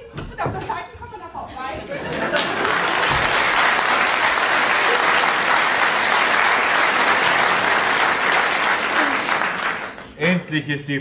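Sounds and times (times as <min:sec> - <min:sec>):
audience applauding: 0:02.1 - 0:10.4.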